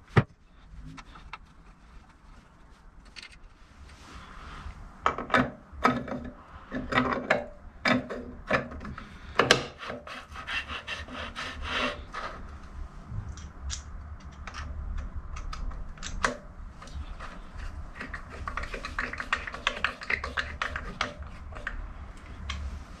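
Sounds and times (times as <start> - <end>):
metal parts scraping and clicking: 3.0 - 4.0.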